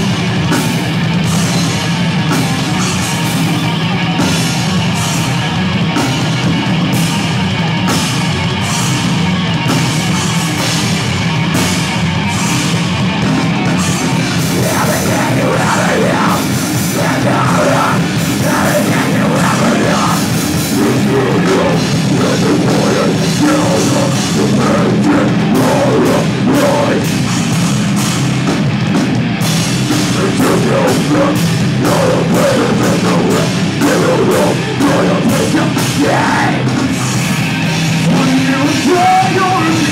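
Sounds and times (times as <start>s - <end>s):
heavy metal band playing: 0.0s - 39.9s
person singing: 14.4s - 27.2s, 30.0s - 37.2s.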